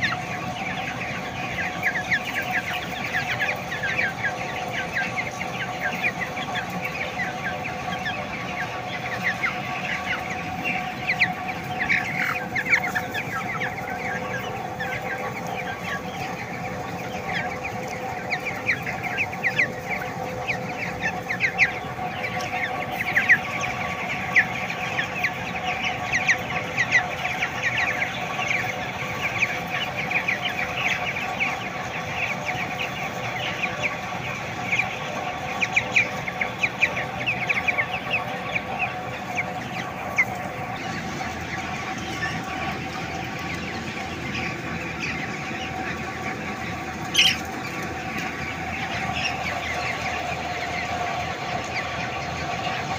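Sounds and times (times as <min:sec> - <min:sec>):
chicks peeping and chirping: 0:00.0 - 0:52.9.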